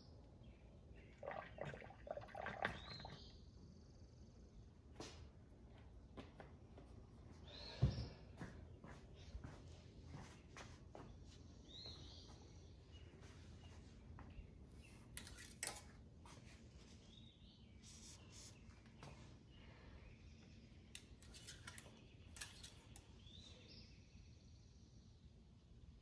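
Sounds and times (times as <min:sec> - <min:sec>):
bird chirping faintly: 0:00.0 - 0:04.7
light clicks and rustles: 0:21.0 - 0:23.3.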